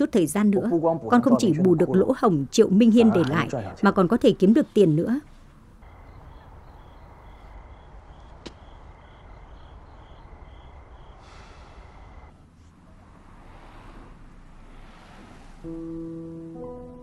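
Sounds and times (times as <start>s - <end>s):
insects chirping: 5.8s - 12.3s.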